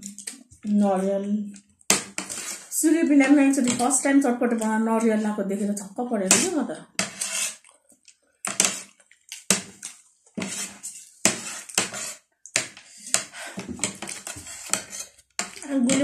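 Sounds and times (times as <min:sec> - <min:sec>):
metal spoon scraping a plate: 0:02.2 - 0:02.7, 0:06.3 - 0:07.6, 0:10.4 - 0:12.2, 0:13.0 - 0:16.0.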